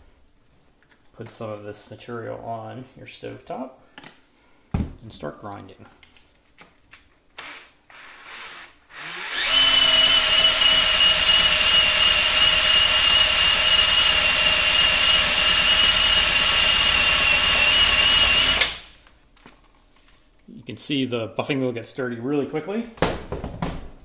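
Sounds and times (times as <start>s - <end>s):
cordless drill high whine: 7.4s - 18.9s.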